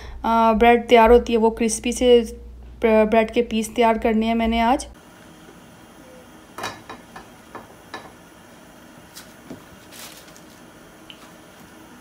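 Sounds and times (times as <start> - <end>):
bread tapping in frying pan: 6.6 - 8.2
rustle of handling: 9.0 - 11.7.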